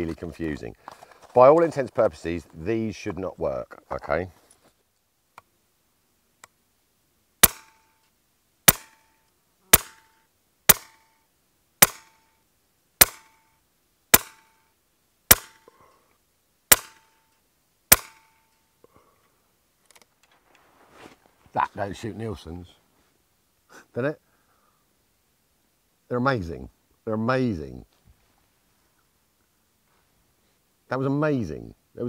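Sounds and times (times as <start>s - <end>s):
air rifle firing: 7.4s - 7.8s, 8.7s - 9.1s, 9.7s - 10.1s, 10.7s - 11.0s, 11.8s - 12.2s, 13.0s - 13.4s, 14.1s - 14.6s, 15.3s - 15.7s, 16.7s - 17.1s, 17.9s - 18.4s.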